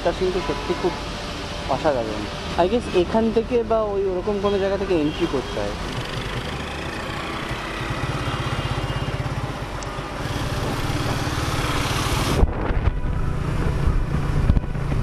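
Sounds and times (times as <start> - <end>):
wind and road noise: 0.0 - 15.0
scooter engine running: 5.8 - 12.4.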